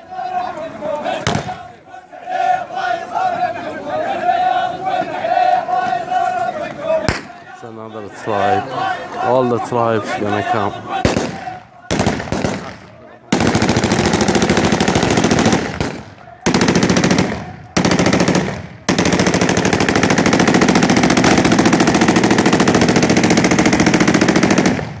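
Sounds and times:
automatic gunfire: 11.0s - 25.0s.

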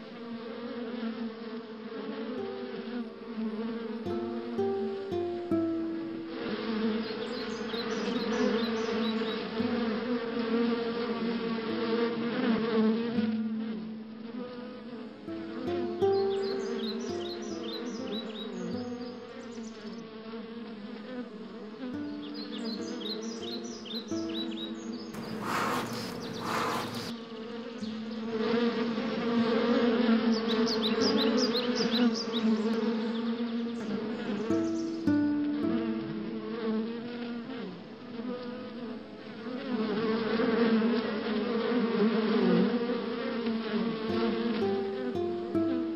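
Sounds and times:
honeybees buzzing: 0.0s - 45.9s
bellows smoker puffs: 25.2s - 27.1s.

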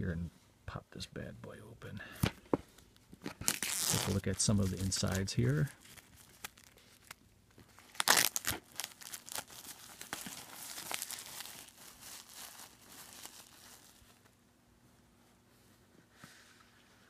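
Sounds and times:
plastic wrap crinkling: 3.3s - 14.4s.

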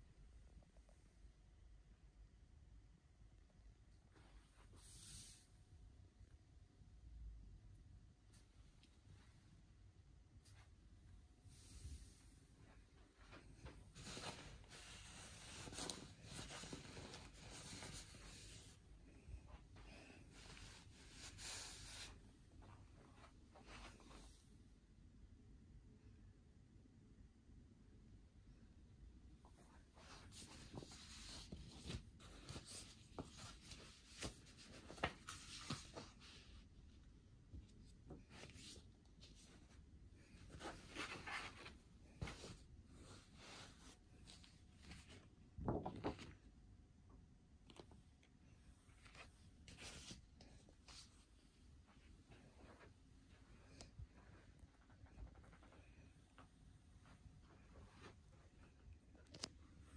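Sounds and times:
bedding rustling: 11.6s - 24.4s.

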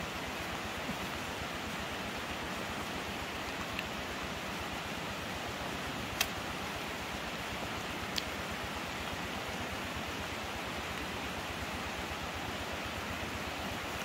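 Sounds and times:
steady rushing noise: 0.0s - 14.0s
sharp click: 6.2s - 6.4s.

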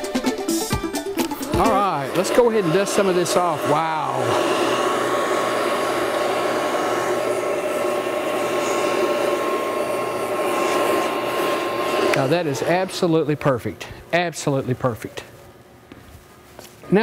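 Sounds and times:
air tool rushing and whining: 1.3s - 14.6s.

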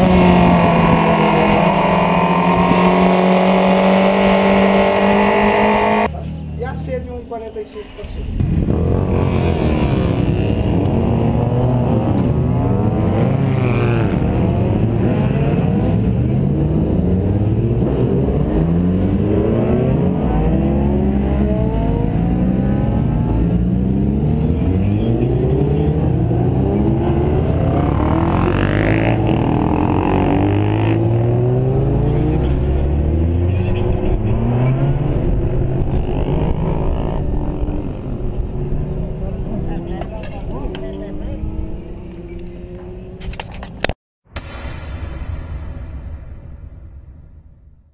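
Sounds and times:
motorcycles accelerating: 0.0s - 6.4s, 8.2s - 43.9s.

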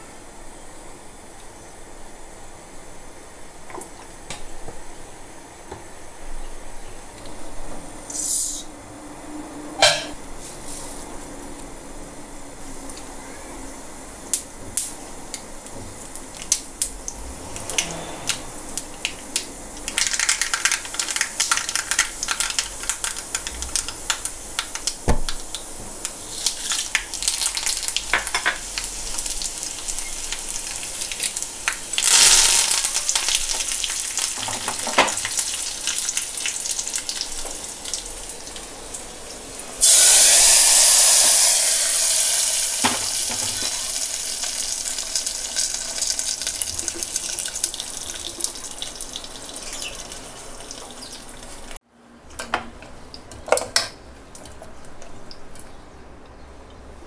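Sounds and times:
seeds popping in hot oil: 18.8s - 38.0s
hot oil hissing: 20.5s - 51.8s.

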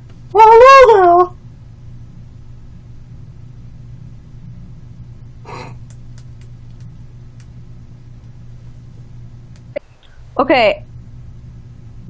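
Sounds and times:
steady low hum: 0.0s - 12.0s
short gasp: 5.4s - 5.8s
faint clicks: 5.8s - 7.6s.

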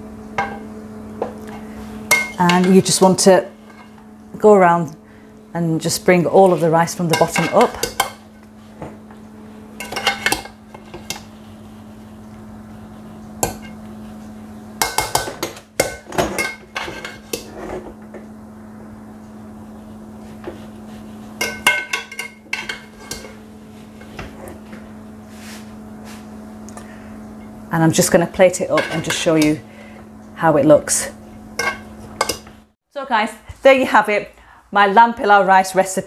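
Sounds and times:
steady low hum: 0.0s - 35.0s
spoon scraping a metal pot: 21.4s - 23.4s.

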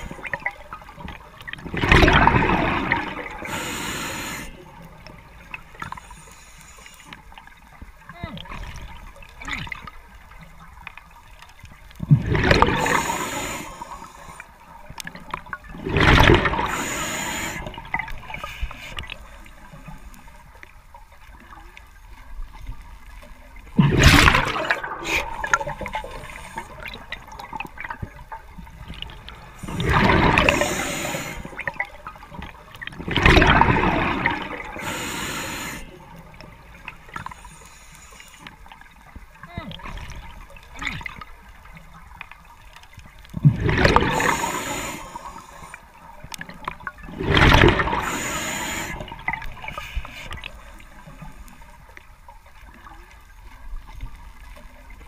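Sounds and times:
exhaled bubbles bursting: 1.6s - 3.5s, 12.0s - 13.2s, 15.4s - 16.9s, 23.8s - 28.0s, 28.9s - 32.0s, 32.9s - 34.8s, 43.4s - 44.7s, 46.8s - 48.2s
regulator hiss: 3.4s - 4.6s, 16.7s - 17.8s, 30.4s - 31.6s, 34.8s - 35.9s, 48.0s - 49.0s.

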